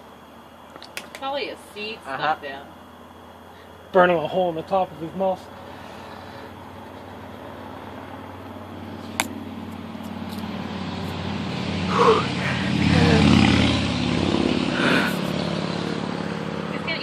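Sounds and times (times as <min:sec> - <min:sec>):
motor humming: 0:08.6 - 0:13.5.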